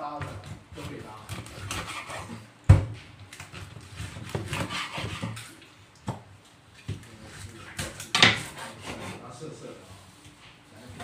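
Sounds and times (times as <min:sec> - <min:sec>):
knife chopping on wooden board: 0:00.3 - 0:05.4, 0:07.8 - 0:09.2.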